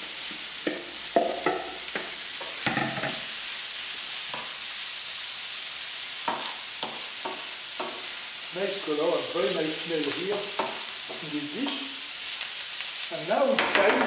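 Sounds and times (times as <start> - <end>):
vegetables sizzling in a frying pan: 0.0 - 14.0
wooden spoon scraping a pan: 0.7 - 3.4.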